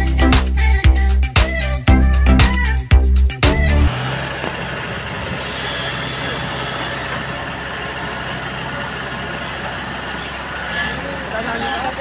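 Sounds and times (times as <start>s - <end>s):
combine harvester engine humming: 3.7s - 12.0s.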